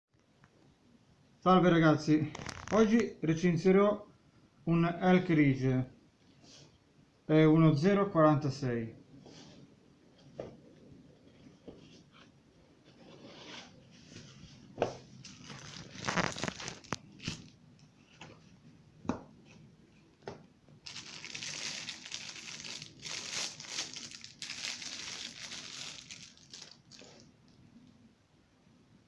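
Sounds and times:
plastic wrapping crinkling: 0:02.4 - 0:03.0, 0:15.1 - 0:17.9, 0:20.8 - 0:27.3.

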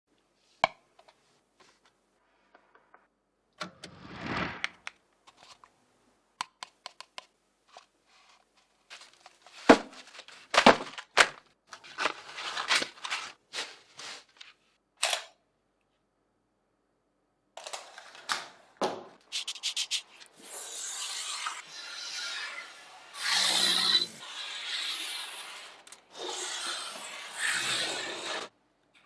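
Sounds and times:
paperboard crinkling and tearing: 0:08.9 - 0:14.6.

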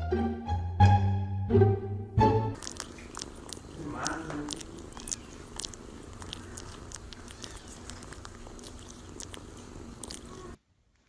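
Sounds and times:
kitten purring: 0:02.6 - 0:10.6.

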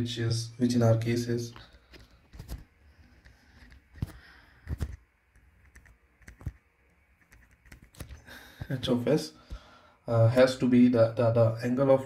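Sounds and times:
stylus tapping on tablet screen: 0:07.2 - 0:08.2.

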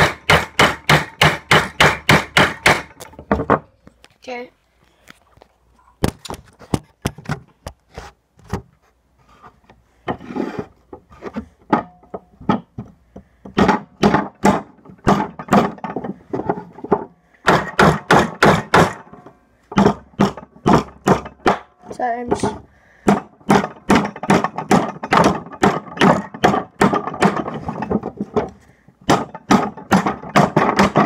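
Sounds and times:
hammer driving nails into wood: 0:00.0 - 0:03.6, 0:11.7 - 0:21.7, 0:22.4 - 0:31.0.

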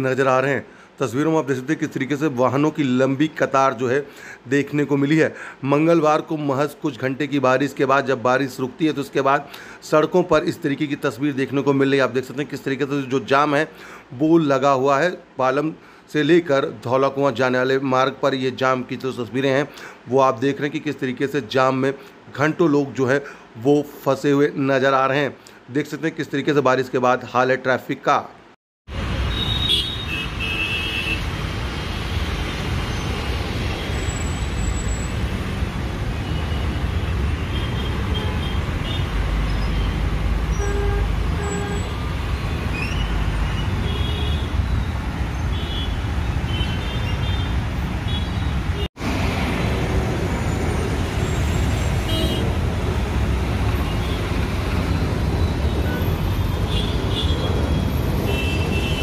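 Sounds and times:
traffic rumble: 0:00.0 - 0:27.1, 0:28.4 - 0:59.0
vehicle horn toots: 0:29.3 - 0:31.3, 0:39.8 - 0:42.0, 0:52.0 - 0:52.6, 0:55.7 - 0:57.5, 0:58.2 - 0:59.0.

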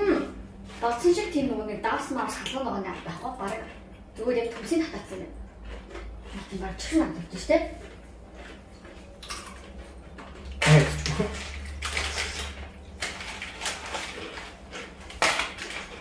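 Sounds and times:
plastic snack bag crinkling: 0:09.3 - 0:16.0.

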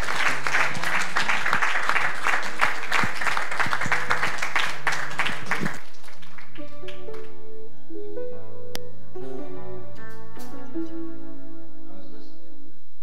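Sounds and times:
crowd applauding: 0:00.0 - 0:07.4.

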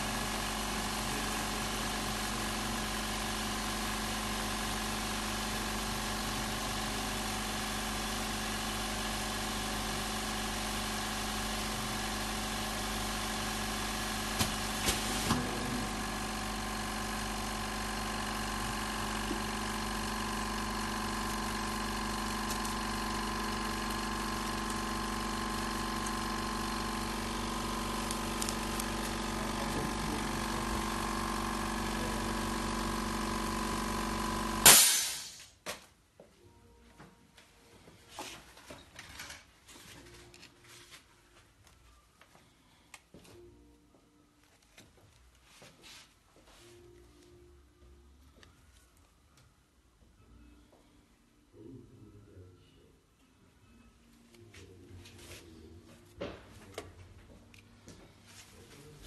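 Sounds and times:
machinery humming: 0:00.0 - 0:34.9.

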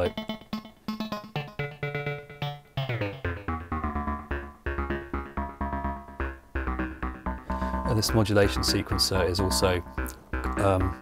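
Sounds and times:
synthesizer sequenced short notes: 0:00.0 - 0:11.0.

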